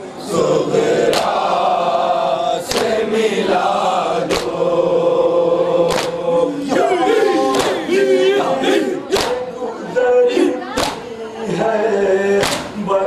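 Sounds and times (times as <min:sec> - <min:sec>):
men chanting in unison: 0:00.2 - 0:13.0
chest-beating slaps: 0:01.0 - 0:01.4, 0:02.6 - 0:03.0, 0:04.3 - 0:04.6, 0:05.8 - 0:06.2, 0:07.5 - 0:07.9, 0:09.1 - 0:09.4, 0:10.8 - 0:11.1, 0:12.4 - 0:12.8.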